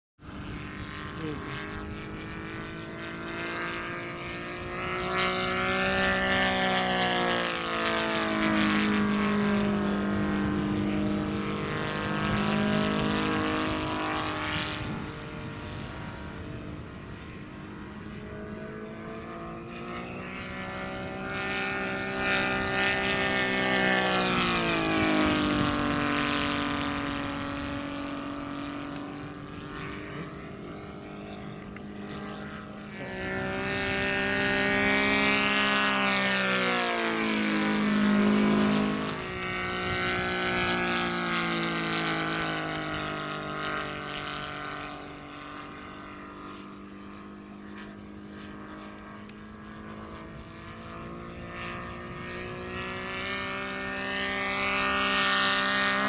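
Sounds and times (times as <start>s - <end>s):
model airplane engine passing: 0.2s - 56.0s.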